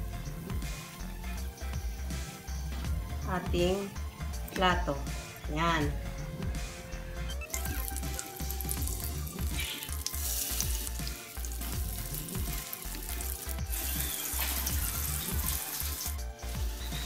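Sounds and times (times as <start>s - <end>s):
fritters sizzling in oil: 7.3s - 17.0s.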